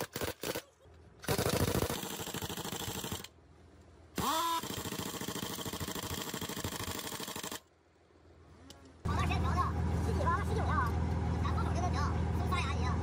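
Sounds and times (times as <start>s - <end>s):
impact wrench whine: 4.2s - 7.4s.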